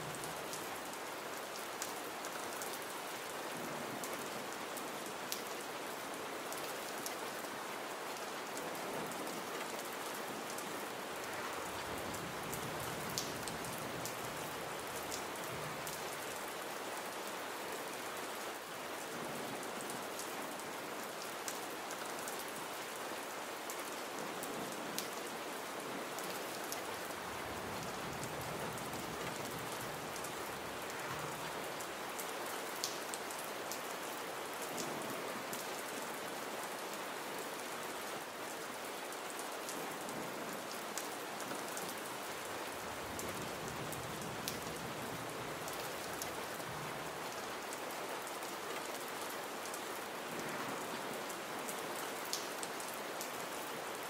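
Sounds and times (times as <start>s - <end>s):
gentle rain hiss: 0.0s - 54.0s.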